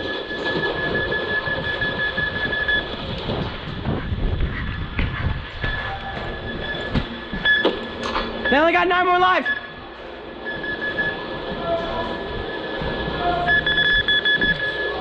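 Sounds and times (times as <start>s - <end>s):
rumbling movement noise with knocks: 0.0s - 8.5s.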